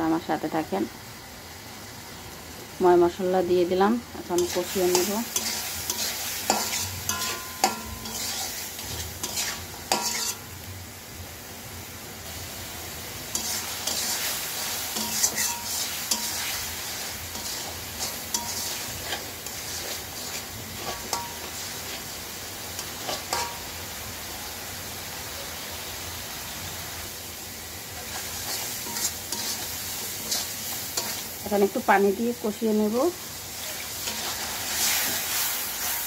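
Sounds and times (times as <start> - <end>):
food sizzling in oil: 0.0 - 36.0
metal spatula scraping pan: 4.4 - 10.5, 13.3 - 22.1, 28.0 - 31.4.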